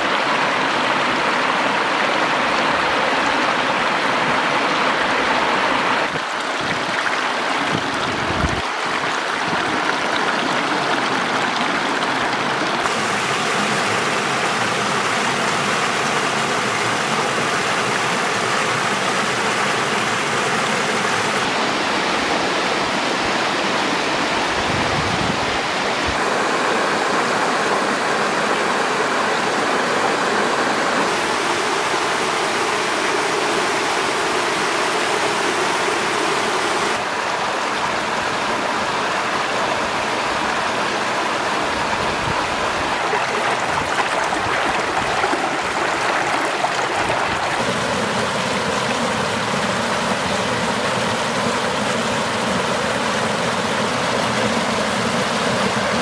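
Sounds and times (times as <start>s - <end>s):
water cascading over rocks: 0.0s - 56.0s.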